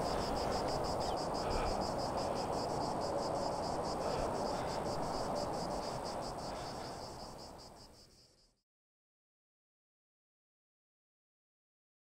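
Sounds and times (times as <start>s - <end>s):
insects chirping: 0.0s - 8.6s.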